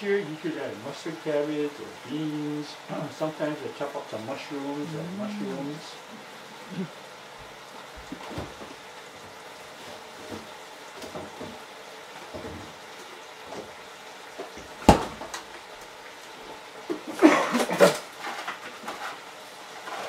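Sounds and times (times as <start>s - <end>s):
dishes and utensils clattering: 16.9s - 19.2s.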